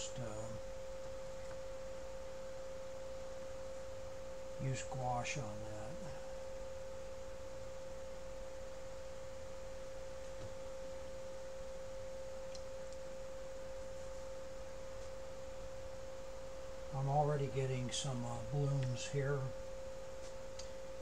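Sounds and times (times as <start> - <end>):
steady single-pitched hum: 0.0 - 21.0.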